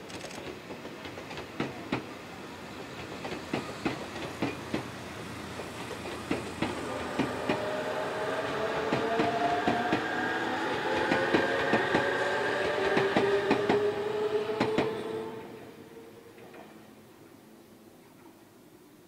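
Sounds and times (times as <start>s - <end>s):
train wheels clacking over rail joints: 0.1s - 2.2s, 2.8s - 7.7s
train whine falling in pitch: 6.3s - 16.2s.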